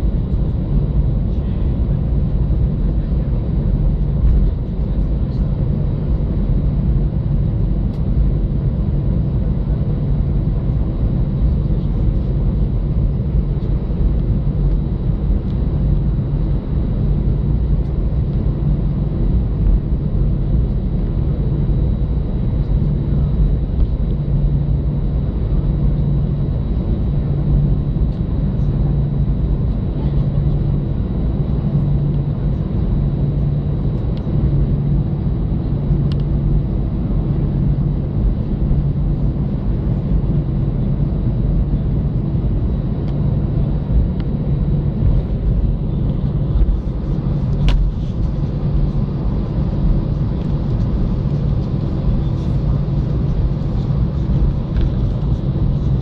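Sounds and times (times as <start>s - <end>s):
jet engines idling in cabin: 0.0s - 56.0s.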